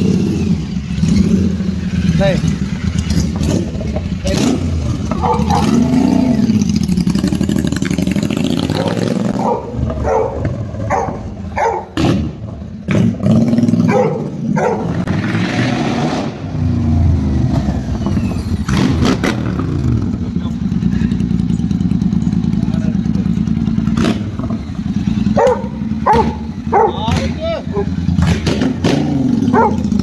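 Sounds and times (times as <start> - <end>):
motorcycle engine revving: 0.0 - 30.0
exhaust pops: 25.4 - 27.6.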